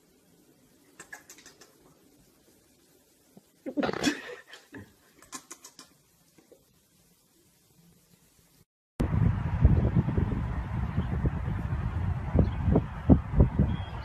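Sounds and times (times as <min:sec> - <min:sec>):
lip-smacking kisses: 0:01.0 - 0:01.8, 0:05.2 - 0:06.0.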